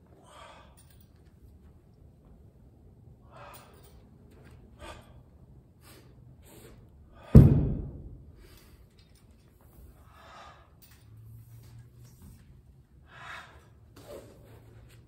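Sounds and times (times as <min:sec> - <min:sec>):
sharp breaths: 0:00.2 - 0:01.0, 0:03.2 - 0:04.0, 0:04.8 - 0:07.4, 0:09.7 - 0:11.8, 0:13.0 - 0:14.8
heavy thud on floor: 0:07.2 - 0:08.2.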